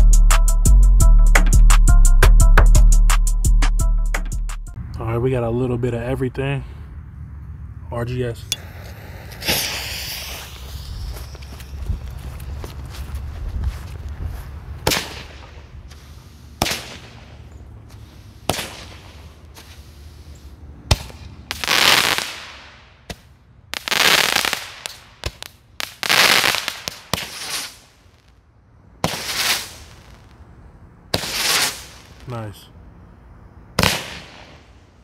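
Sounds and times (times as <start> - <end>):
firework bursts: 8.6 - 12.1, 14.8 - 20.3, 20.9 - 28.4, 29.0 - 30.4, 31.1 - 32.6, 33.8 - 35.0
firework shots: 8.7 - 11.6, 14.8 - 19.7, 20.9 - 28.4, 29.0 - 30.4, 31.1 - 32.5, 33.8 - 35.0.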